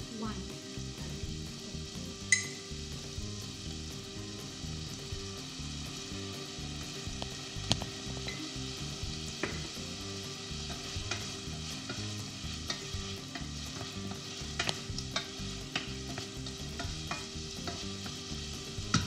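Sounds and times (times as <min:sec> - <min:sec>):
food sizzling in a pan: 0:00.0 - 0:19.0
wooden spoon knocking on pan: 0:09.3 - 0:09.8, 0:10.7 - 0:19.0.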